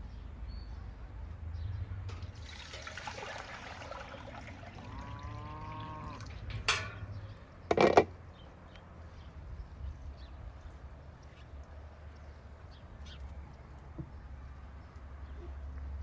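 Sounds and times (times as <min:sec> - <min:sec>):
water pouring into metal pot: 0:02.1 - 0:06.4.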